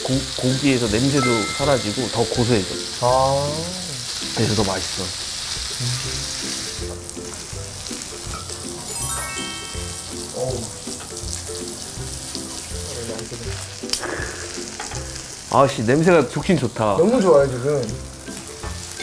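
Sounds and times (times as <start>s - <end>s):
background music: 0.0s - 19.0s
meat sizzling in butter: 0.0s - 19.0s
rising chime effect: 1.2s - 2.0s, 8.7s - 10.8s.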